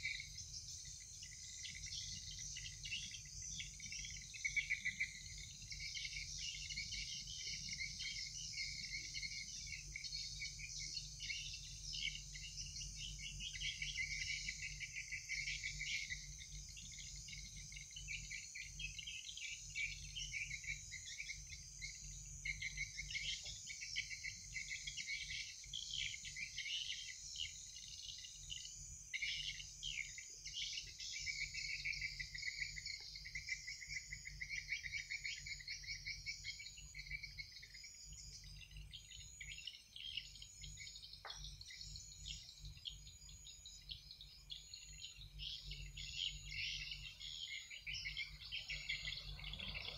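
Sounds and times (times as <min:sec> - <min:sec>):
crickets chirping in trills: 0:00.0 - 0:49.9.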